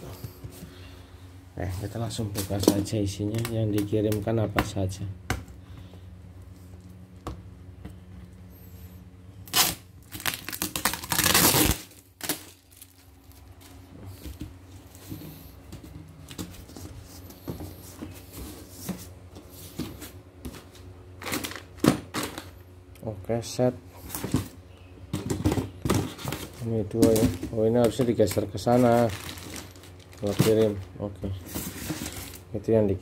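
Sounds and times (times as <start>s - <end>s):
faint steady hum: 0.0s - 33.0s
cardboard and plastic crinkling: 1.7s - 4.3s, 9.5s - 22.6s, 24.0s - 32.5s
packing tape ripping: 9.4s - 13.4s.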